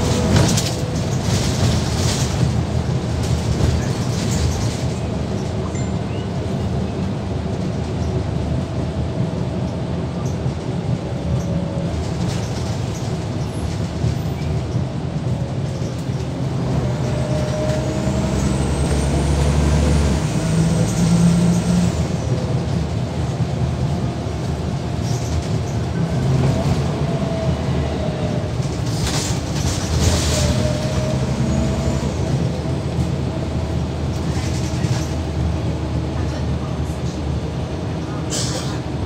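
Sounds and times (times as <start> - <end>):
bus diesel engine running: 0.0 - 39.0.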